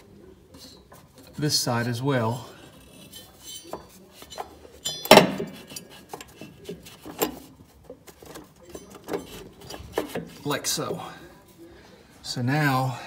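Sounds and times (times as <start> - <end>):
metallic knocks and clinks: 3.4 - 6.3.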